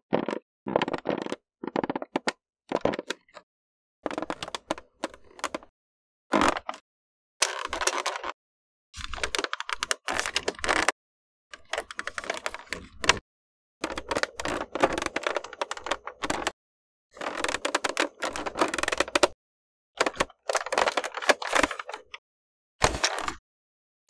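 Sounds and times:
plastic squeaking and creaking: 0:00.0 - 0:03.4, 0:04.0 - 0:05.7, 0:06.3 - 0:06.8, 0:07.4 - 0:08.4, 0:09.0 - 0:13.2, 0:13.8 - 0:19.4, 0:20.0 - 0:22.2, 0:22.8 - 0:23.4.

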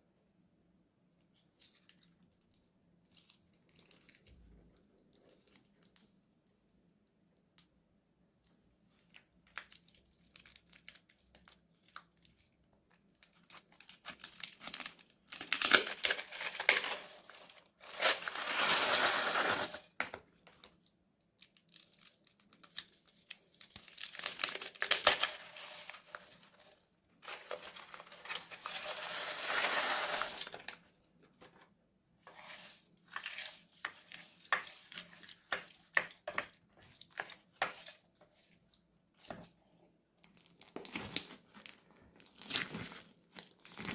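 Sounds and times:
plastic bags crinkling: 0:13.2 - 0:20.0, 0:21.5 - 0:31.6, 0:40.2 - 0:43.9
beads pouring out: 0:17.8 - 0:20.0, 0:28.2 - 0:30.6.

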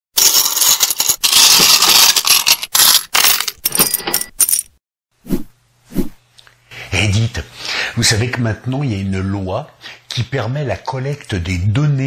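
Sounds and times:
coins clinking and jingling: 0:00.2 - 0:04.7.

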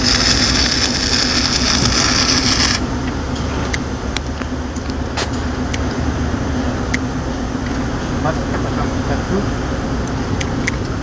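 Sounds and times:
industrial machinery drone: 0:00.0 - 0:11.0.

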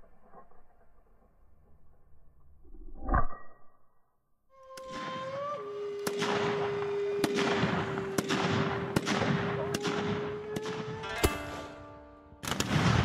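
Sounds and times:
musket shots: 0:04.8 - 0:11.8, 0:12.4 - 0:13.0
crackle and echo of shots: 0:04.8 - 0:13.0.

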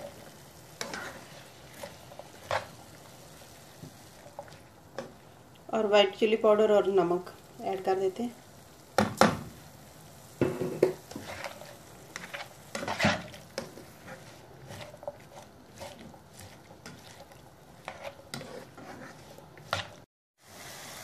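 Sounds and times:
spatula scraping a wok: 0:00.0 - 0:05.2, 0:10.4 - 0:21.0
frying sizzle: 0:00.0 - 0:21.0.

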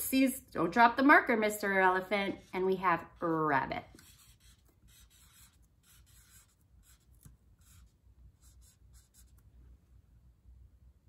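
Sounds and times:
marker writing on paper: 0:03.9 - 0:09.5.

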